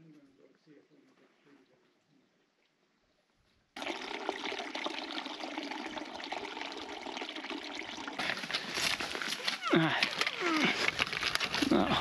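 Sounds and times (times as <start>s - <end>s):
creek running over stones: 3.8s - 11.8s.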